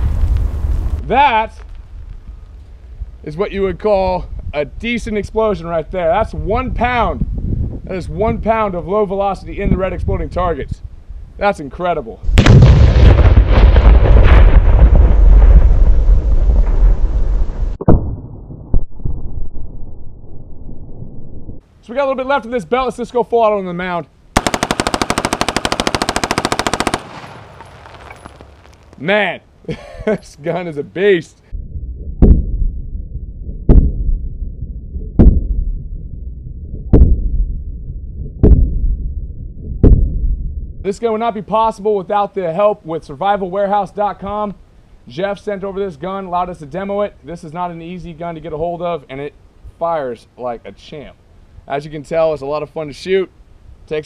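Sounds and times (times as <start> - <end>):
explosion rumble: 0.0 - 2.4, 12.3 - 21.6, 31.5 - 40.8
slowed-down gunfire booms: 12.3 - 20.0, 24.4 - 28.8
low hiss: 21.6 - 31.5, 40.9 - 54.0
rifle shots: 24.4 - 29.0.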